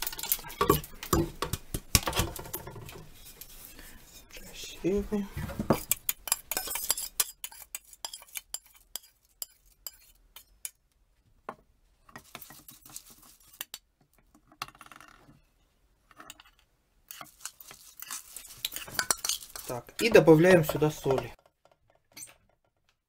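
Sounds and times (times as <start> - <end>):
metal spoon clinking on pan: 5.8 - 10.8, 17.1 - 21.3
seeds rattling: 17.1 - 21.4.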